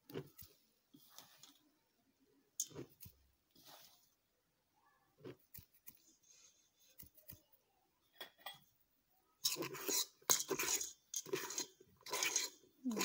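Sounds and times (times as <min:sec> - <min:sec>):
batter stirred in metal bowl: 0:00.0 - 0:01.8, 0:02.5 - 0:04.2, 0:09.4 - 0:13.0
scraping and rubbing in bowl: 0:00.1 - 0:01.6, 0:02.6 - 0:04.2, 0:09.4 - 0:13.0.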